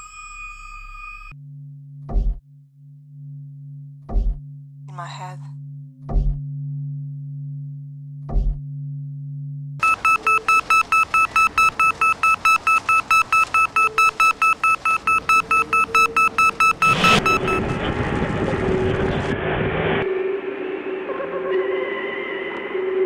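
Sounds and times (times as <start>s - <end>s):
low droning hum: 1.3s - 9.8s
high electronic beeps: 9.8s - 17.8s
swell of noise: 16.8s - 23.0s.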